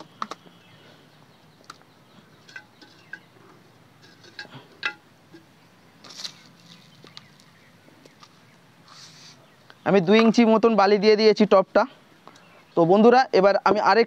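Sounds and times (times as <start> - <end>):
hands spreading sand: 8.8 - 9.5.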